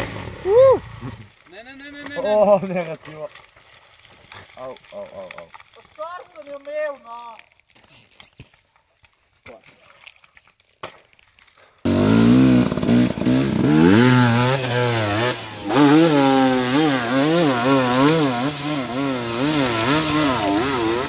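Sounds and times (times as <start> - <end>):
dirt bike engine revving: 11.9 - 21.0.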